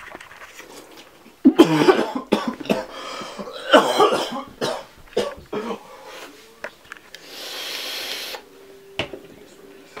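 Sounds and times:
man coughing: 1.5 - 5.9.

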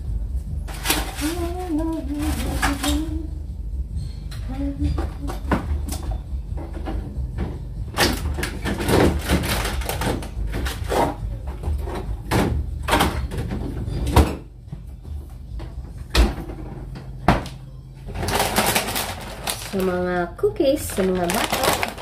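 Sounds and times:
packages rustling: 0.6 - 3.1, 8.2 - 11.2, 18.0 - 22.0
containers knocking on fridge shelves: 4.9 - 19.6
refrigerator door shutting: 7.9 - 11.2, 16.1 - 19.0.

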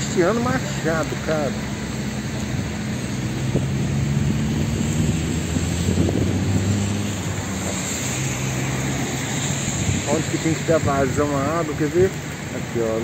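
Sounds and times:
low engine hum: 0.0 - 13.0
noisy outdoor background: 0.0 - 13.0.

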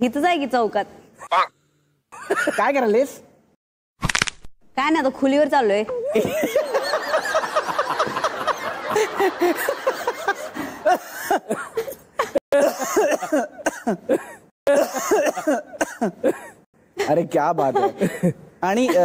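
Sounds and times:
person laughing hard: 6.0 - 13.0.

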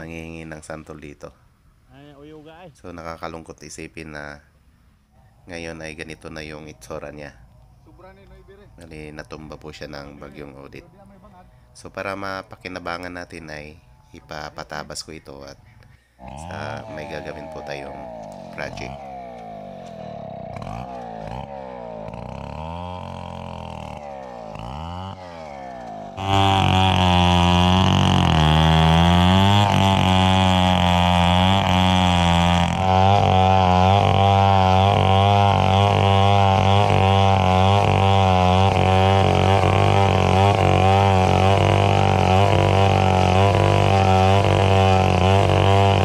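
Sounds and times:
chainsaw cutting log: 16.2 - 46.0.

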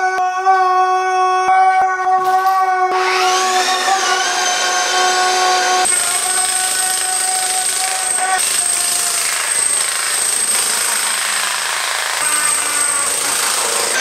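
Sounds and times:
electric chipping hammer breaking tile: 3.0 - 14.0.

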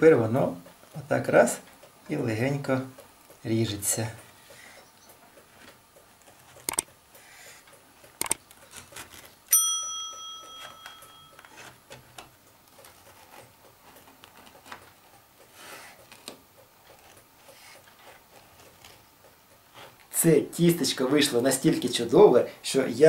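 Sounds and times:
sharp clicks: 4.5 - 8.7
bell-like metallic ding: 9.5 - 11.4.

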